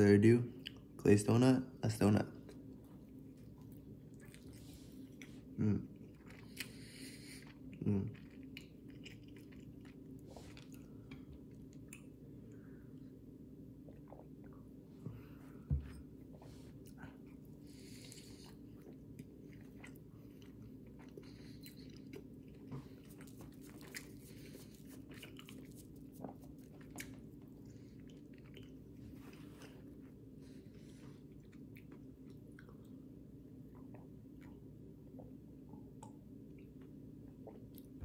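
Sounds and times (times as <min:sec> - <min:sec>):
steady low hum: 0:00.0 - 0:38.0
chewing: 0:02.4 - 0:12.2, 0:16.8 - 0:33.0.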